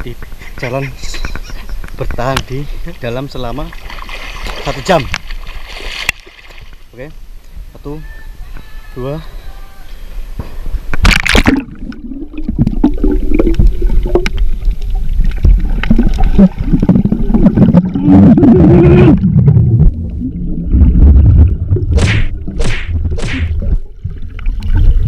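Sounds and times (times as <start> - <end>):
water splash: 3.7 - 6.8, 11.0 - 25.0
underwater rumble: 10.7 - 25.0
underwater bubbling and gurgling: 10.9 - 25.0.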